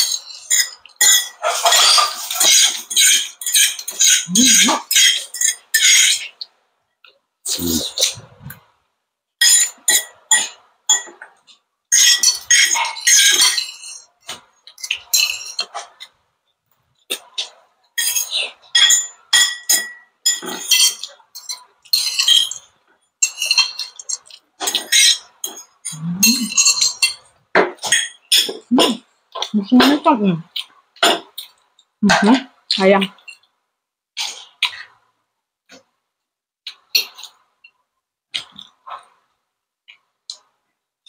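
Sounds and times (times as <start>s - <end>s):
cutlery clinking on ceramic plates: 0.0s - 6.5s, 9.4s - 16.2s, 17.1s - 32.4s, 33.1s - 33.5s
person eating noodles: 0.0s - 6.5s, 7.4s - 8.8s.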